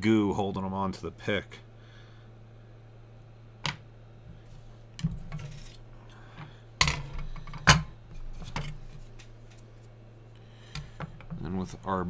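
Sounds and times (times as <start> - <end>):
low steady hum: 0.0 - 12.0
tools clattering on workbench: 6.8 - 9.3.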